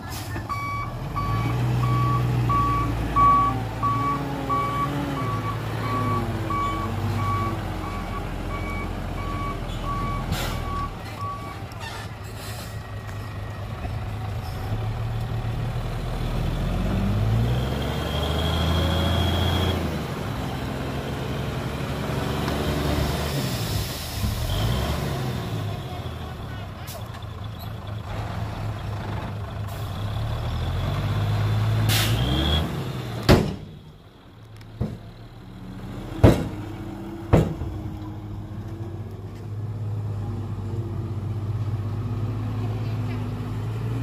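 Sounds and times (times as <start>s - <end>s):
reversing alarm beeping: 0.5s - 11.6s.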